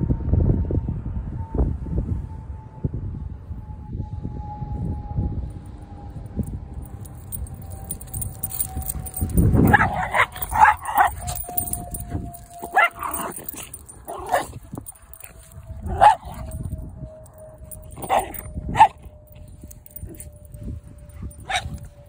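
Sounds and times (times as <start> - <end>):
small dogs barking and yipping: 7.2 - 20.5, 21.1 - 22.0.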